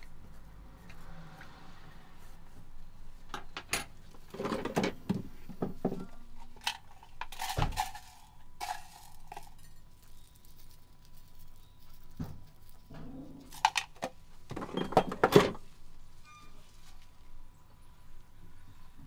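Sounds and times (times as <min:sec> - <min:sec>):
utensils clinking on metal: 0:06.0 - 0:14.0.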